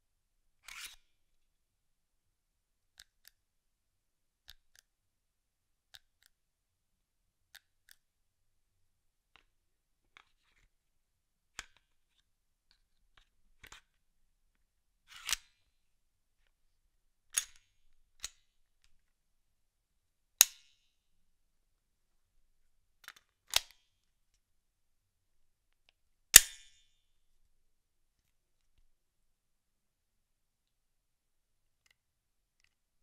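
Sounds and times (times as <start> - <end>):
pistol slide metallic clicks: 26.4 - 26.8.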